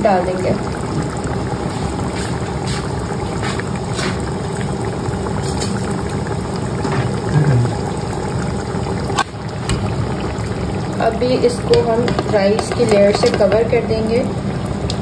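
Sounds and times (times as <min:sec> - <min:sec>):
curry bubbling in pot: 0:00.0 - 0:15.0
spoon knocking and scraping: 0:11.7 - 0:13.6.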